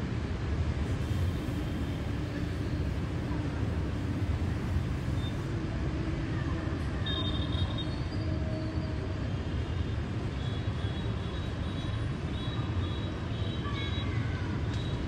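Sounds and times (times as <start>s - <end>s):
traffic on wet roads: 0.0s - 15.0s.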